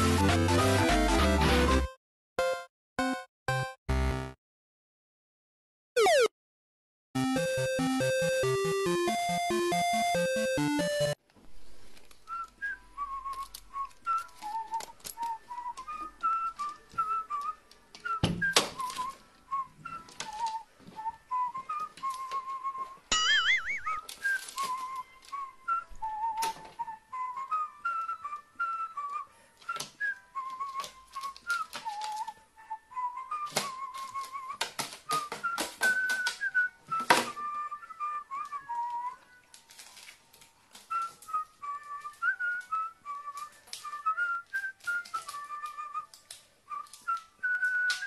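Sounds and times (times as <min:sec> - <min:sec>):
person whistling a tune: 0:12.2 - 0:39.4, 0:40.8 - 0:48.0.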